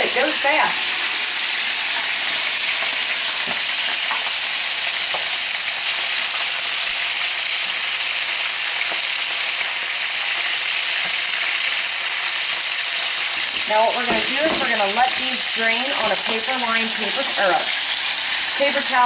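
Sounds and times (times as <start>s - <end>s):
chicken sizzling in oil: 0.0s - 19.0s.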